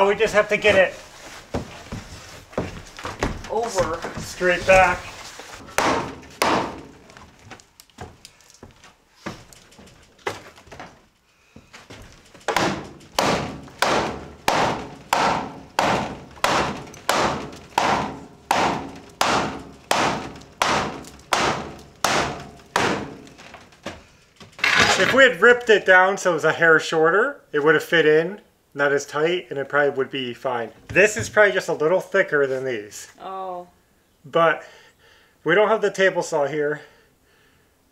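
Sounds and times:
hammer striking wooden board: 5.6s - 7.1s, 12.5s - 23.4s.

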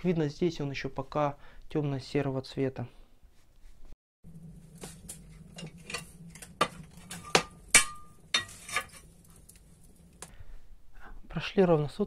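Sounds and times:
burning wood crackling: 4.2s - 10.5s
steady low hum: 4.3s - 11.0s.

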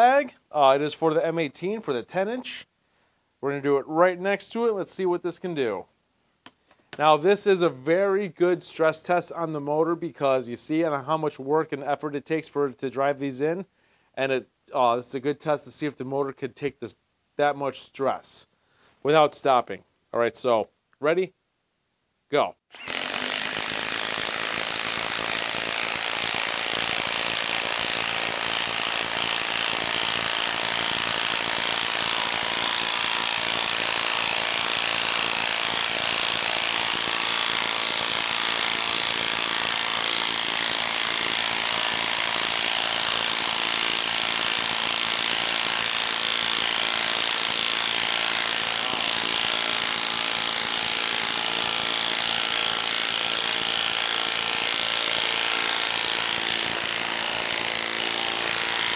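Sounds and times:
impact wrench hammering: 22.8s - 58.9s.

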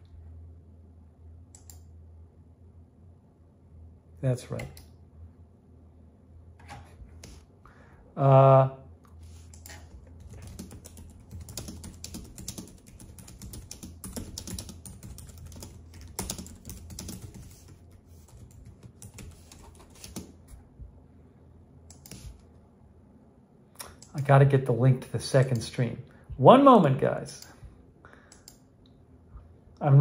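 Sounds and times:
keyboard typing clicks: 1.5s - 1.9s, 9.5s - 17.6s, 28.3s - 28.6s.

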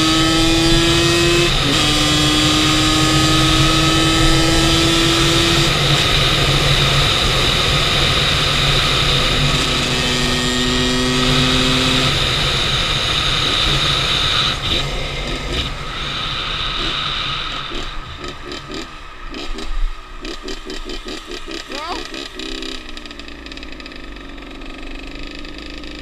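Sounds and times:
wind rushing on camera: 0.0s - 23.2s
motorcycle engine running: 0.0s - 26.0s.

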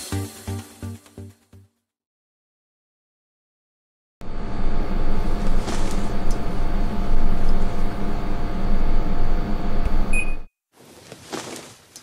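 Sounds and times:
air conditioner whirring: 4.2s - 10.5s
short beep: 10.1s - 10.5s.

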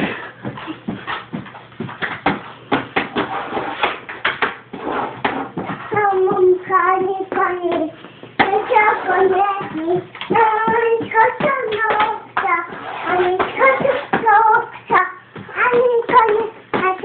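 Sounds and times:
girl singing: 5.2s - 17.0s.

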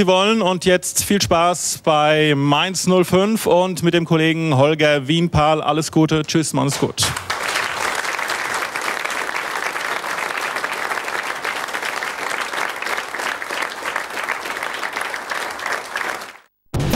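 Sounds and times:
audience applause: 7.1s - 16.5s.

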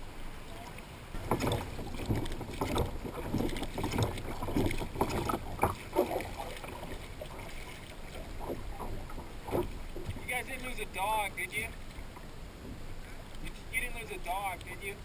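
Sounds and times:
water lapping against kayak hull: 0.0s - 15.0s.

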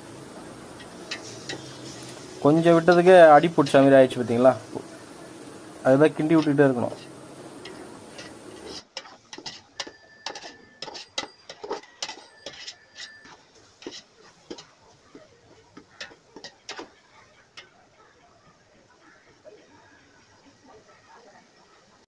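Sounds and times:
metal ladle scraping a pot: 0.8s - 3.8s, 6.3s - 14.8s, 15.7s - 17.0s.

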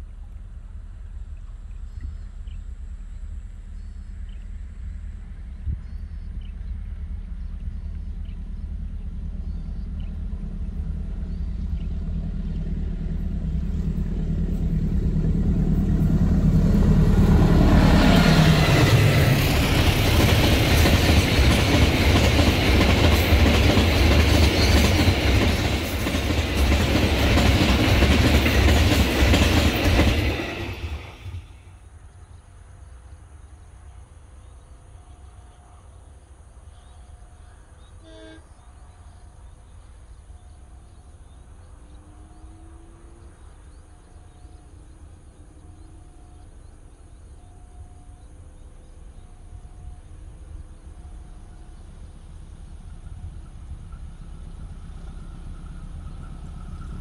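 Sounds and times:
diesel locomotive engine drone: 0.0s - 57.0s
faint insects: 0.0s - 57.0s
train wheels clattering: 18.0s - 31.5s.

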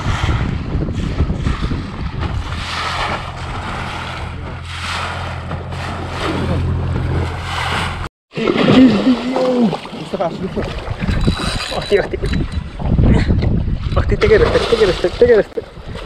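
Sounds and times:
wind buffeting microphone: 0.0s - 8.1s, 10.0s - 16.0s
water slapping boat: 0.0s - 16.0s
steady low hum: 0.9s - 8.1s.

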